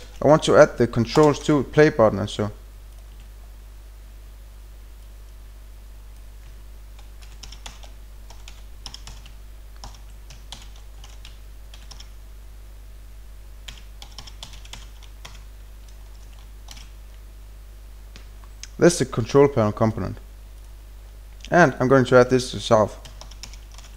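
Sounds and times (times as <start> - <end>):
faint low hum: 0.0 - 23.9
computer keyboard typing: 6.4 - 12.2, 13.6 - 17.0, 23.0 - 23.9.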